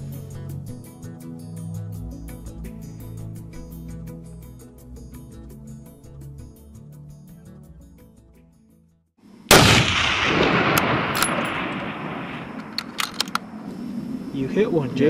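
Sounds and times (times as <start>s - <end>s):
background music: 0.0s - 9.0s
rifle shot echoing: 9.5s - 14.4s
sharp clicks: 9.9s - 13.7s.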